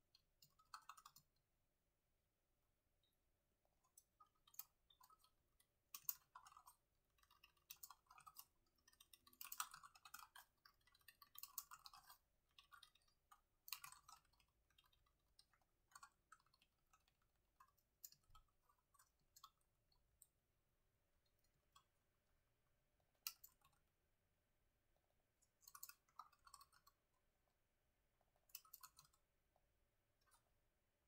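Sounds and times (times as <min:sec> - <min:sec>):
laptop keyboard typing: 0:00.1 - 0:01.4, 0:03.8 - 0:20.4, 0:21.4 - 0:23.9, 0:25.4 - 0:27.5, 0:28.1 - 0:30.8.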